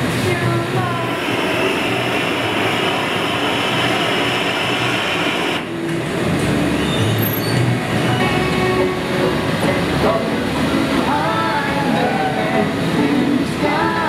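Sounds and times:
gas torch roaring: 0:00.0 - 0:06.8
furnace burners rushing: 0:00.7 - 0:06.6.

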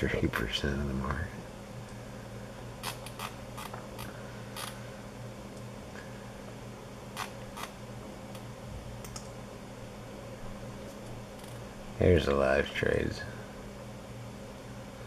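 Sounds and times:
computer mouse clicks: 0:09.0 - 0:09.3.

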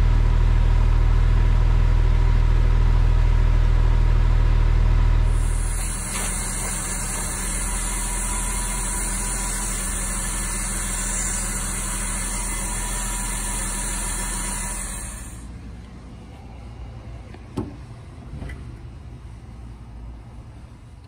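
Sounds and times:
car engine idling: 0:00.0 - 0:18.0
loud steady hiss: 0:05.3 - 0:15.6.

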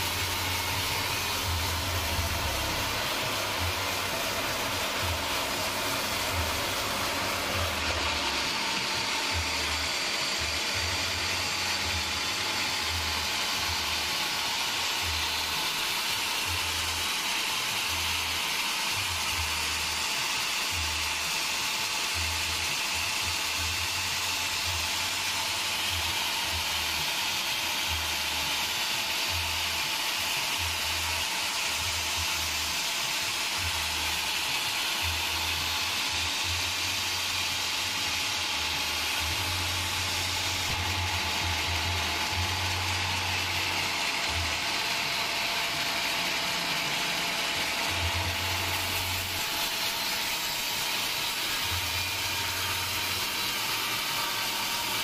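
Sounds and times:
band saw blade hissing: 0:00.0 - 0:18.3.

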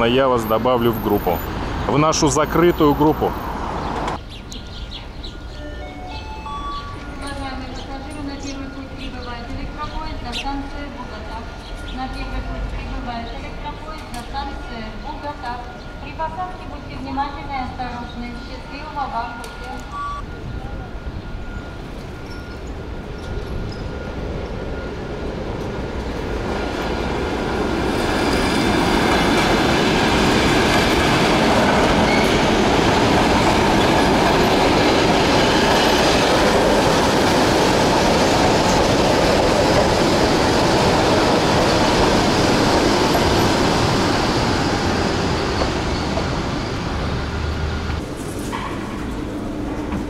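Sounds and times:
electric train passing: 0:00.0 - 0:50.0.

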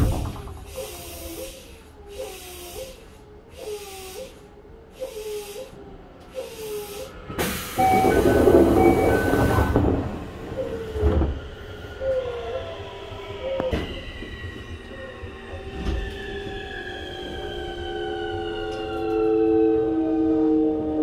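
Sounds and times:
train doors thumping shut: 0:00.0 - 0:03.1, 0:07.3 - 0:11.7
door beeps: 0:07.7 - 0:10.0.

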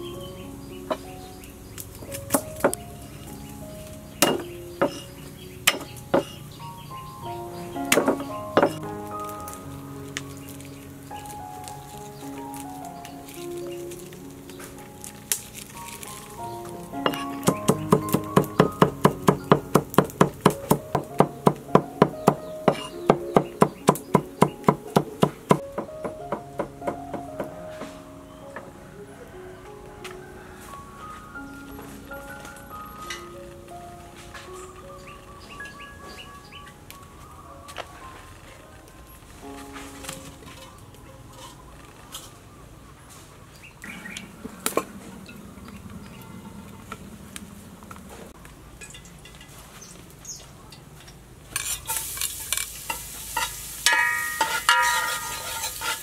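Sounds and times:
background music: 0:00.0 - 0:42.8
birds chirping: 0:00.0 - 0:49.1, 0:49.7 - 0:51.2
metal clinks against pot: 0:51.6 - 0:56.0.

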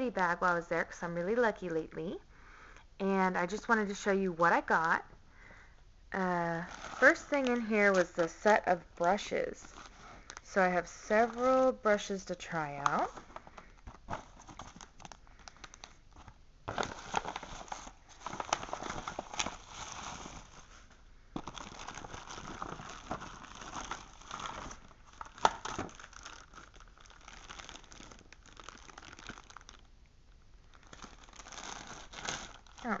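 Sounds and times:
plastic packaging crinkling: 0:06.5 - 0:30.0, 0:30.6 - 0:33.0.

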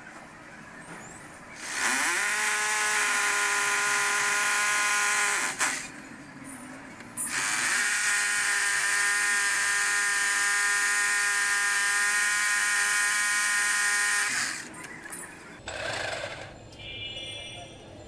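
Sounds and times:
electric drill whining: 0:01.6 - 0:05.9, 0:07.3 - 0:14.7.

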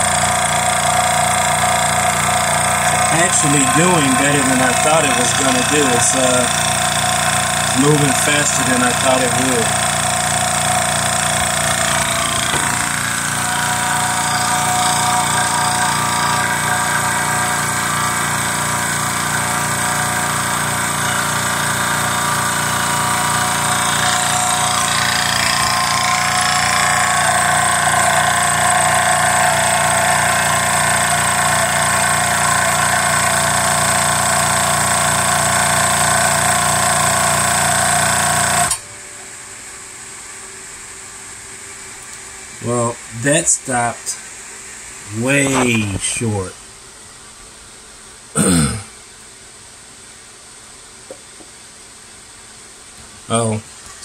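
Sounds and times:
air compressor pumping: 0:00.0 - 0:38.8.

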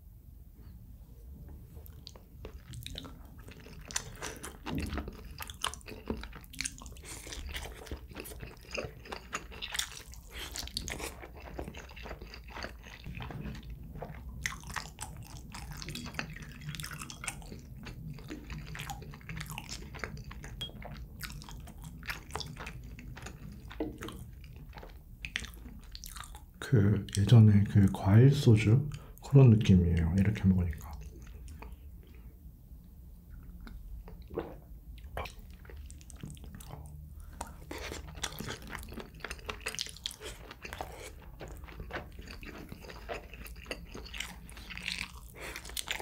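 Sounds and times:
person chewing food: 0:01.7 - 0:27.2, 0:30.8 - 0:32.5, 0:33.3 - 0:46.0.

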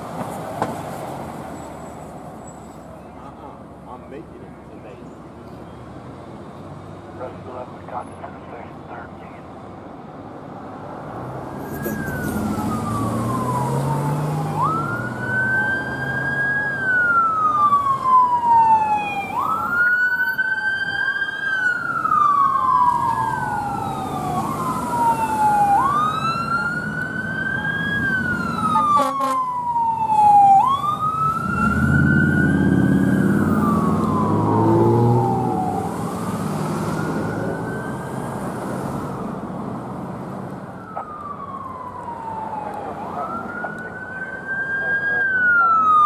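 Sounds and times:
vehicle engine rumbling: 0:00.0 - 0:19.8
siren wailing: 0:11.6 - 0:38.6, 0:40.7 - 0:46.0.

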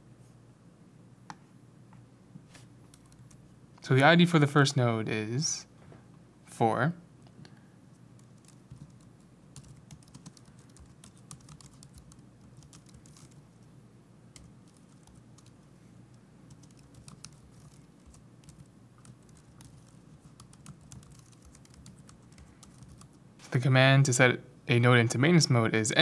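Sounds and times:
low steady hum: 0:00.0 - 0:26.0
computer keyboard typing: 0:02.9 - 0:03.4, 0:08.2 - 0:13.5, 0:14.3 - 0:15.6, 0:16.5 - 0:23.2.

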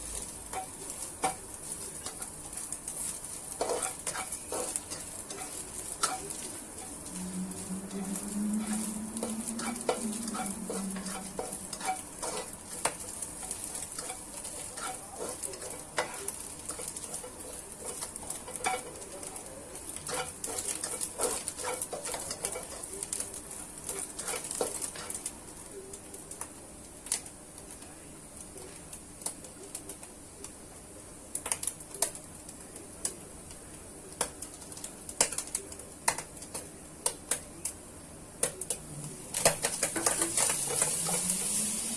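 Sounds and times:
spatula scraping and tapping pan: 0:00.0 - 0:25.3, 0:34.1 - 0:37.8, 0:38.4 - 0:41.7
scallops sizzling in oil: 0:00.0 - 0:27.7, 0:38.4 - 0:41.9.

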